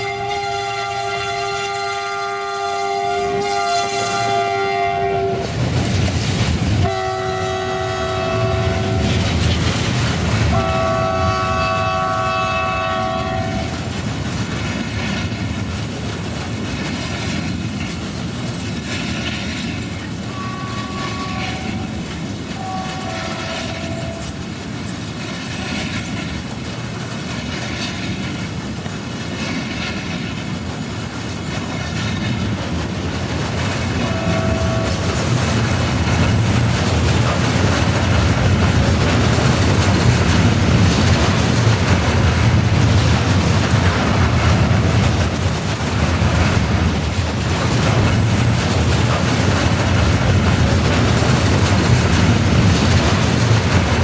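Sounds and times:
locomotive horn blasts: 0:00.0 - 0:05.5, 0:06.8 - 0:09.1, 0:10.5 - 0:13.8, 0:20.3 - 0:22.0, 0:22.6 - 0:24.4, 0:34.0 - 0:35.1
passing train rumble and clickety-clack: 0:00.0 - 0:54.0.

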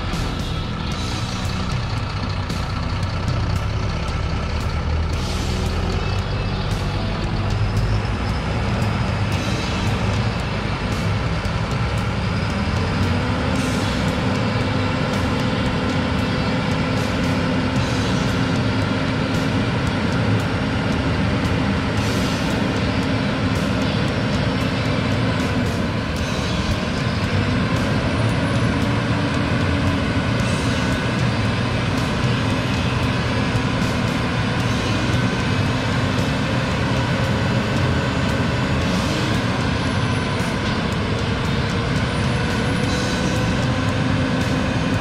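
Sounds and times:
heavy machinery engine running: 0:00.0 - 0:45.0.

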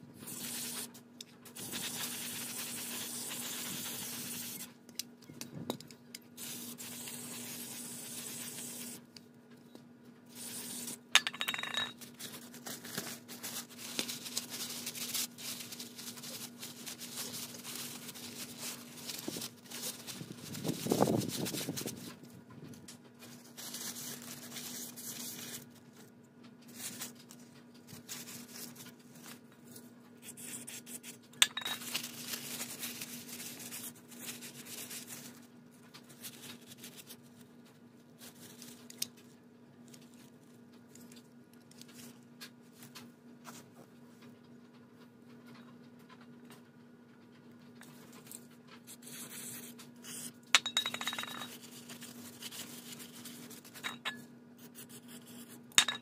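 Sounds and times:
aerosol spray hissing: 0:01.6 - 0:04.7
metal clinks on concrete: 0:11.2 - 0:12.0.

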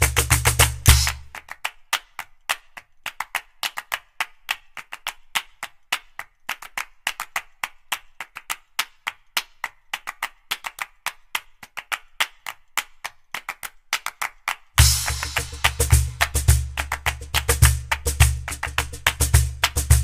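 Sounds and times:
percussion clicks music: 0:00.0 - 0:01.4, 0:14.8 - 0:20.0.

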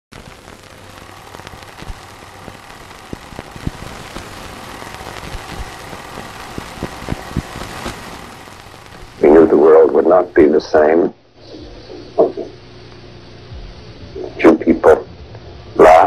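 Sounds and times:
clicks and pops: 0:00.1 - 0:09.2
recording hiss: 0:00.1 - 0:15.0
low hum: 0:00.1 - 0:15.8.

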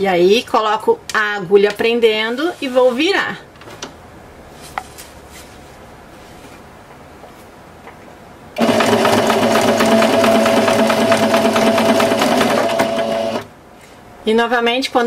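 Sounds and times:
sewing machine stitching: 0:08.6 - 0:13.5.

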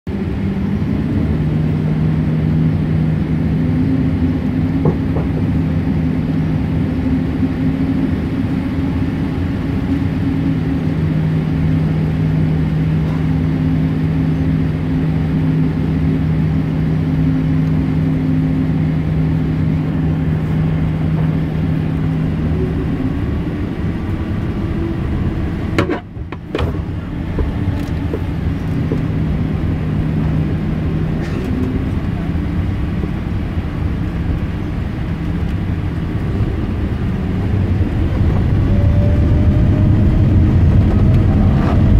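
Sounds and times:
airplane cabin drone: 0:00.1 - 0:41.9.

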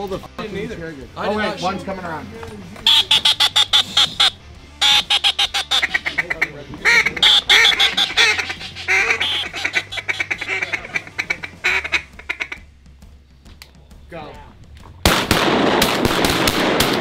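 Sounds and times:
duck call quacking notes: 0:02.8 - 0:12.7.

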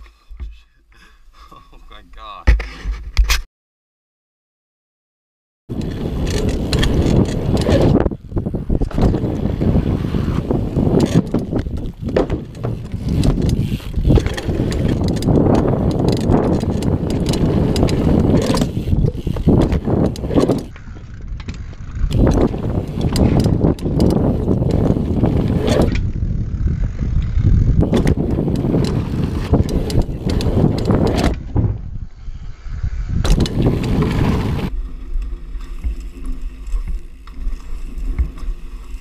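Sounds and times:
bike rattling and knocking: 0:05.7 - 0:31.9, 0:33.2 - 0:39.0
wind on microphone: 0:05.7 - 0:34.8
bike tyres rumbling over dirt: 0:05.7 - 0:39.0.

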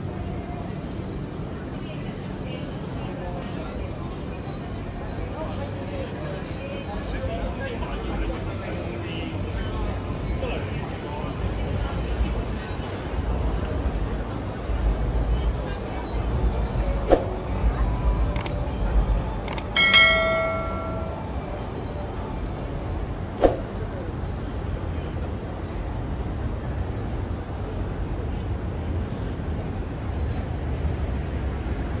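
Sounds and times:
street background noise: 0:00.0 - 0:32.0
short clicks: 0:18.3 - 0:18.6, 0:19.4 - 0:19.8
metal bell ringing: 0:19.8 - 0:21.5.

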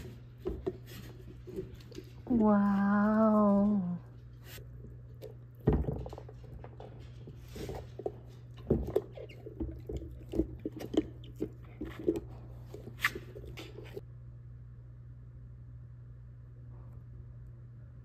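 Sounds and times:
dog chewing a toy: 0:04.8 - 0:14.0.

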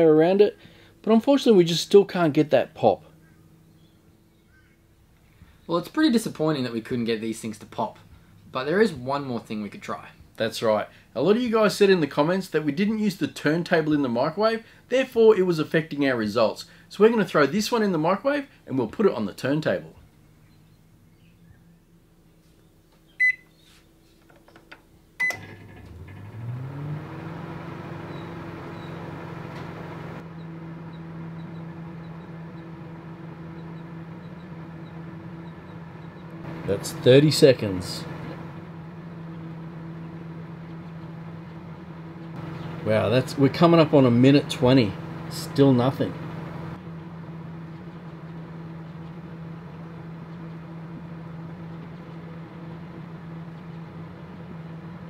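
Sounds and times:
microwave oven humming: 0:03.1 - 0:08.6, 0:20.0 - 0:22.3, 0:24.5 - 0:55.0
microwave keypad beeps: 0:23.2 - 0:23.5, 0:25.2 - 0:25.5.

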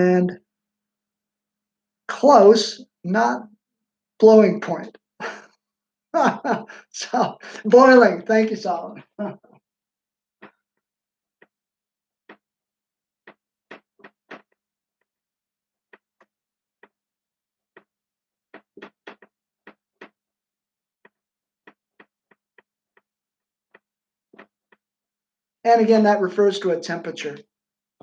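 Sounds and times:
marker tapping and scratching whiteboard: 0:13.2 - 0:14.6, 0:15.9 - 0:17.0, 0:18.6 - 0:20.2, 0:21.0 - 0:23.1.

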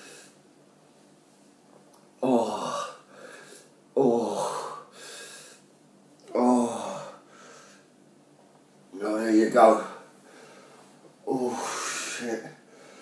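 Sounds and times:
man groaning in pain: 0:02.2 - 0:03.0, 0:04.0 - 0:04.8, 0:06.3 - 0:07.2, 0:11.3 - 0:12.5.

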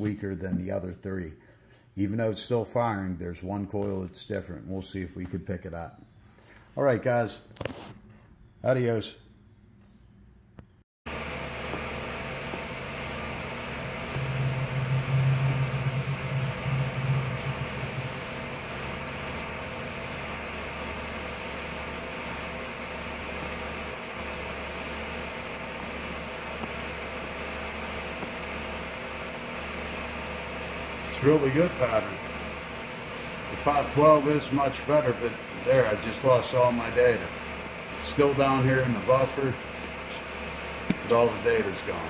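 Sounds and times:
low hum: 0:13.2 - 0:20.8
car engine idling: 0:14.1 - 0:20.2.

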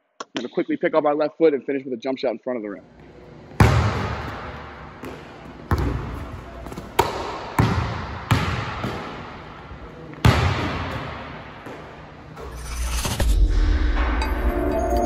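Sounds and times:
basketball bouncing on hardwood: 0:03.6 - 0:06.1, 0:07.0 - 0:09.1.

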